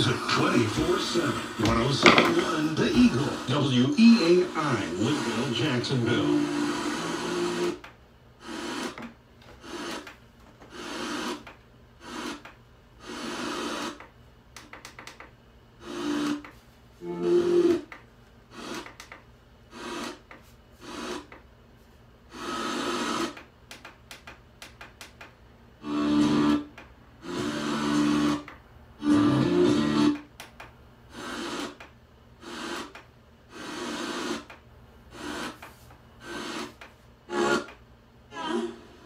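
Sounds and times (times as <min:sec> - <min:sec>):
radio static hiss: 0:00.0 - 0:07.8, 0:33.5 - 0:37.7
snatches of radio station audio: 0:00.0 - 0:07.9.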